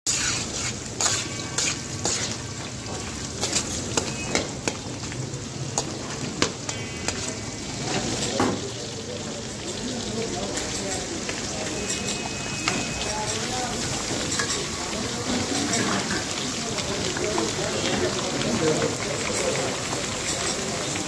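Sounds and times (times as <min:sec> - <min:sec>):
metal spatula scraping pan: 0:00.1 - 0:04.4
meat sizzling in hot oil: 0:00.1 - 0:21.0.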